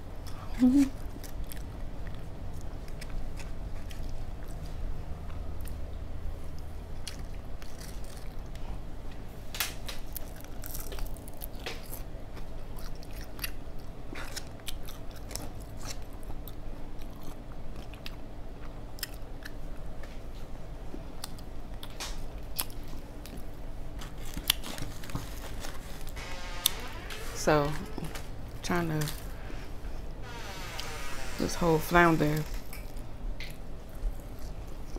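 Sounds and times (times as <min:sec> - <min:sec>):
steady low hum: 0:00.0 - 0:34.9
person chewing crisp food: 0:00.2 - 0:08.9, 0:10.0 - 0:26.1, 0:32.6 - 0:34.9.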